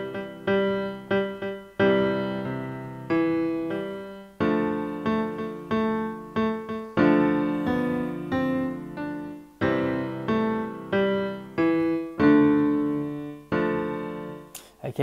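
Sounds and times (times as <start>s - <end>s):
piano melody with chords: 0.0s - 14.6s.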